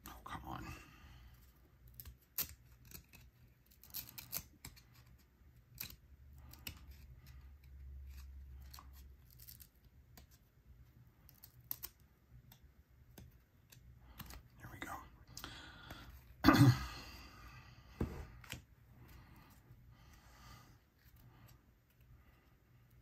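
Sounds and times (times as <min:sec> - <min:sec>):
cards sliding and clicking: 0:01.8 - 0:14.6.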